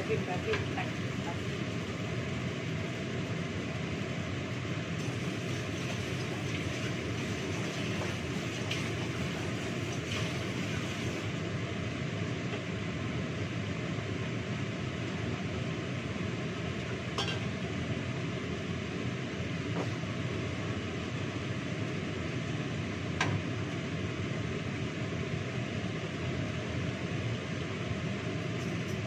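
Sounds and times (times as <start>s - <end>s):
rushing kitchen noise: 5.0s - 11.6s.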